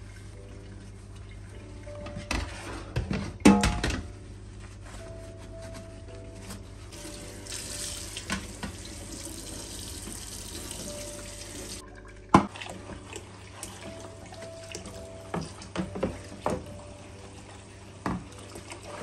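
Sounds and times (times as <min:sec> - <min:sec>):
tap running into steel sink: 0:07.5 - 0:09.0.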